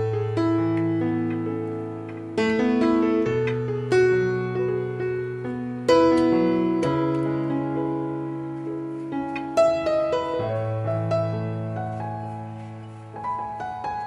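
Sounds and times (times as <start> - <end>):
piano music: 0.0 - 14.0.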